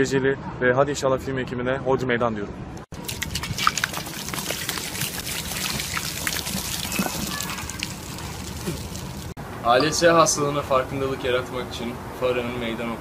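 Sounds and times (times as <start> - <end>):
water splash: 2.9 - 9.4
pouring water: 3.0 - 9.4
water dripping: 3.0 - 9.4.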